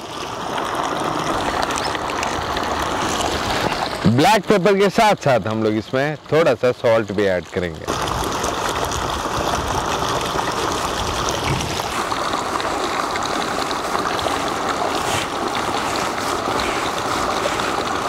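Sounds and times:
salt pouring: 0:06.8 - 0:18.0
gloved hand rubbing dry powder: 0:14.3 - 0:18.0.

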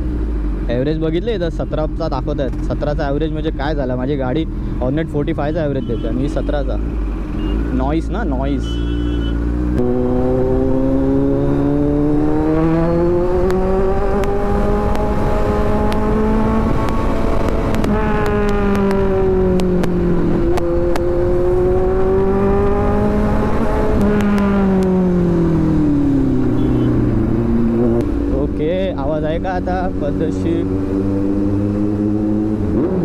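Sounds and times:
motorcycle engine revving: 0:06.7 - 0:33.0.

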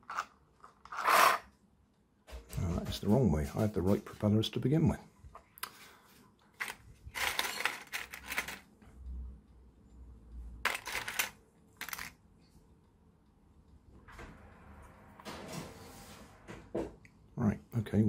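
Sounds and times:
plastic parts clicking and clattering: 0:06.6 - 0:08.7, 0:10.6 - 0:12.2.

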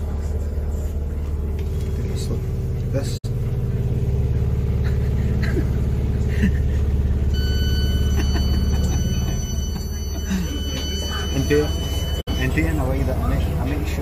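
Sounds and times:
train rumble inside carriage: 0:04.4 - 0:14.0
steady high-pitched tone: 0:07.3 - 0:14.0.

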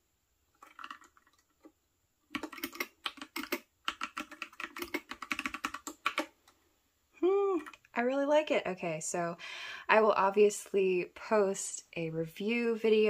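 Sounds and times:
mechanical keyboard typing: 0:00.6 - 0:01.4, 0:02.3 - 0:06.3.

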